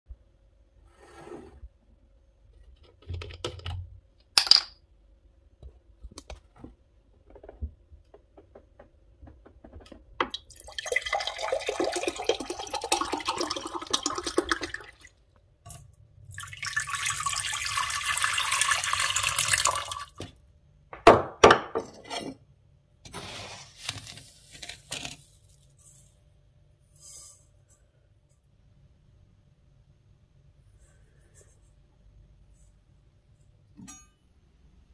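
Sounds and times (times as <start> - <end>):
water pouring into glass: 10.3 - 15.1, 16.3 - 20.1
water pouring into pot: 10.3 - 15.2, 16.3 - 20.2.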